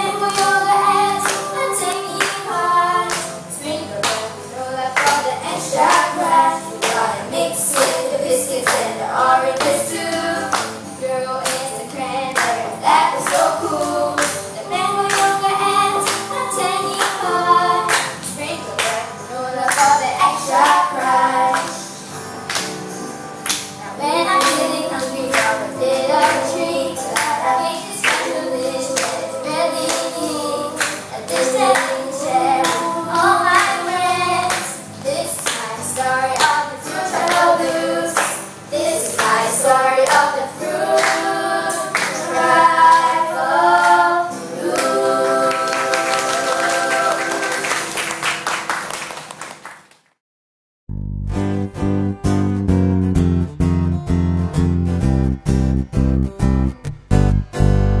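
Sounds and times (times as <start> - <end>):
children singing: 0.0 - 22.0, 23.8 - 48.1
backing track with steady beat: 52.2 - 58.0.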